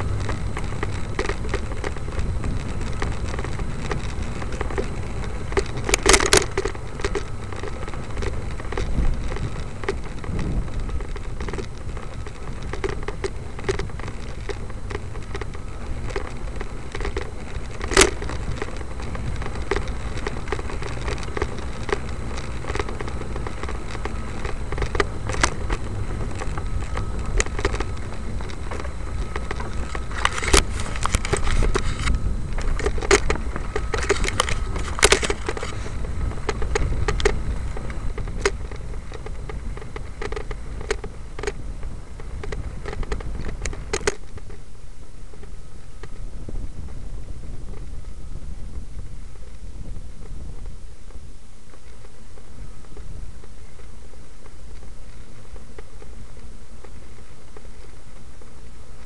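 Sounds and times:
crackling clicks and rattles: 0:00.0 - 0:59.0
wind rumble on microphone: 0:00.0 - 0:59.0.

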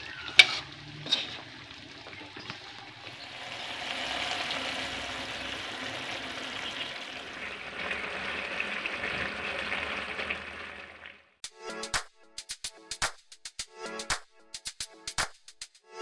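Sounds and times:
spatula stirring: 0:00.0 - 0:10.3
food sizzling in a pan: 0:00.0 - 0:11.1.

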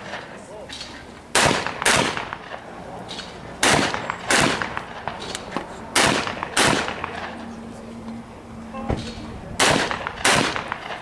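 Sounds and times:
shotgun shots: 0:01.3 - 0:05.2, 0:06.0 - 0:07.4, 0:09.6 - 0:11.0.

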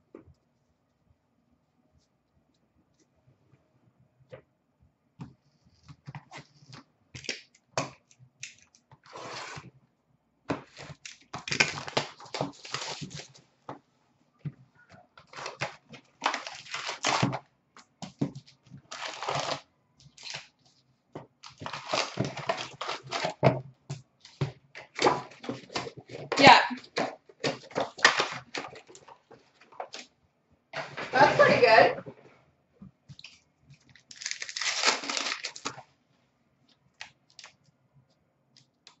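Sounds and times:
wrappers crinkling and tearing: 0:10.7 - 0:13.4, 0:15.3 - 0:17.4, 0:18.9 - 0:20.5, 0:21.4 - 0:23.4, 0:33.2 - 0:35.8.

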